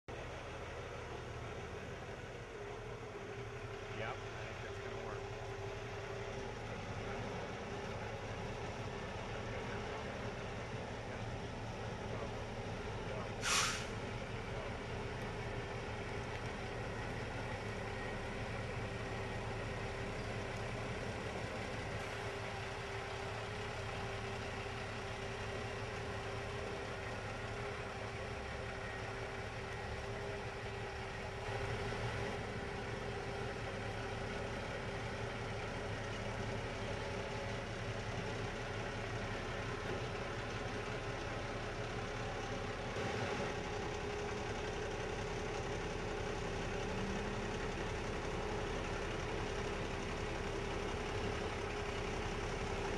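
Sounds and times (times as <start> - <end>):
truck diesel engine running: 0.1 - 52.9.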